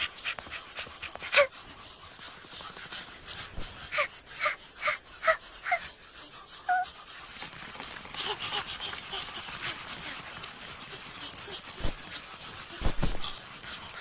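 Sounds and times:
small dog panting: 0.0s - 14.0s
high whimpering yip: 6.7s - 6.9s.

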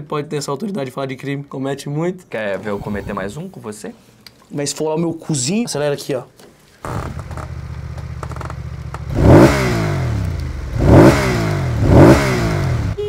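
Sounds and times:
motorcycle engine idling and revving: 6.8s - 13.0s.

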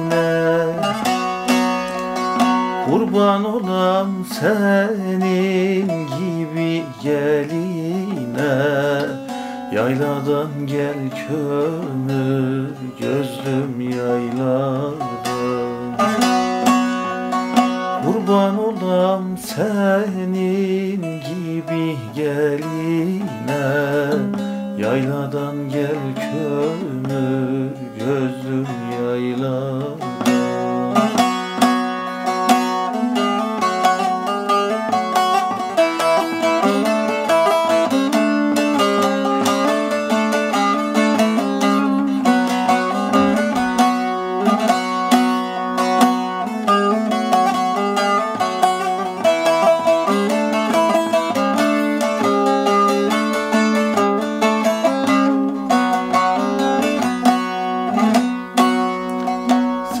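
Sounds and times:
plucked long-necked lute melody: 0.0s - 60.0s.

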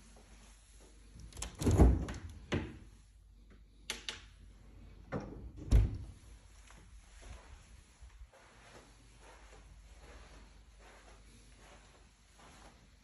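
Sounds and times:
fridge door thumping open and shut: 1.6s - 2.7s, 5.6s - 6.0s.

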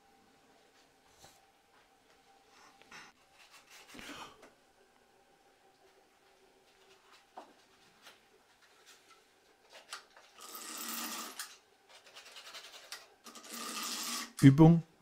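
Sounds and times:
tool rubbing and scraping wires: 6.7s - 14.4s.

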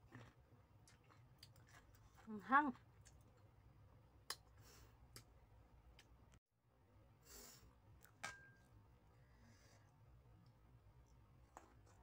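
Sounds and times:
soft breaths: 9.1s - 10.1s.

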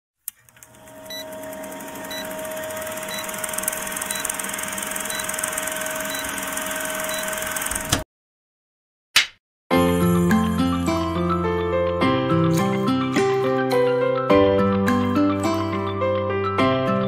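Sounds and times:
film projector whir and crackle: 0.2s - 8.0s.

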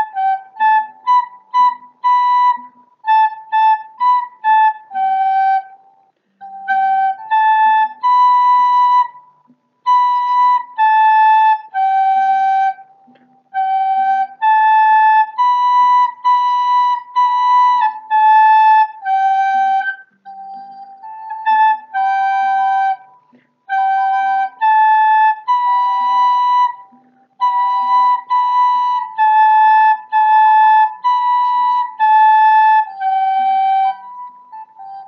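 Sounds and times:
recorder playing a simple tune: 0.0s - 35.0s.

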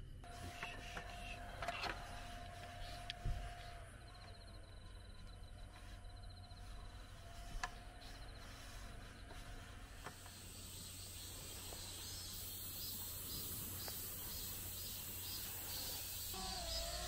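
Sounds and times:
insects chirping: 0.6s - 17.0s
steady high hiss: 6.6s - 17.0s.

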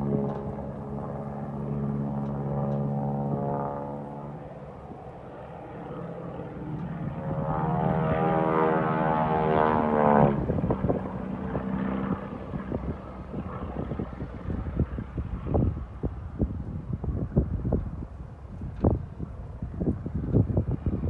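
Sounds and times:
biplane engine and propeller: 0.0s - 21.0s
wind buffeting microphone: 6.6s - 21.0s.

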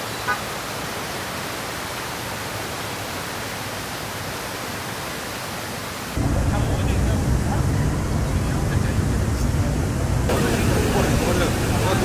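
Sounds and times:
city street traffic: 6.2s - 12.0s
crowd noise: 6.2s - 12.0s.

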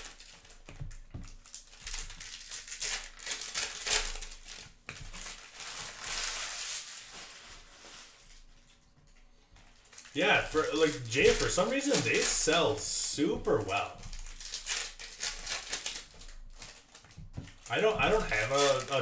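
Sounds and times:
foil wrappers crinkling: 0.0s - 19.0s.

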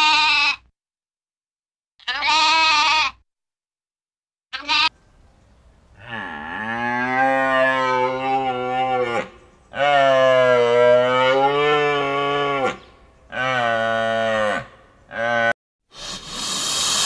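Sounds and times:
cow mooing: 6.0s - 15.5s.

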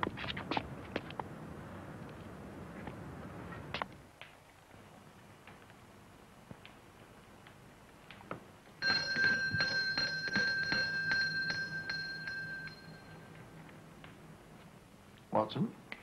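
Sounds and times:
doorbell ringing: 8.8s - 13.3s.

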